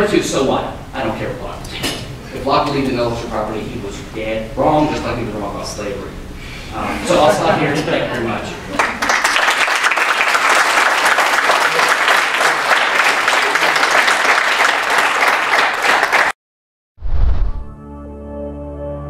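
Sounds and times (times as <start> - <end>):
audience applauding: 8.7 - 16.4
deep whoosh: 17.0 - 17.8.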